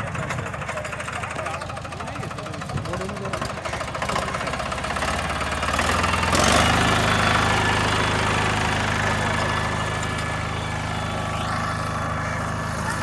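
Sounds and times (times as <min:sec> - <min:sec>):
tractor diesel engine revving: 0:00.0 - 0:13.0.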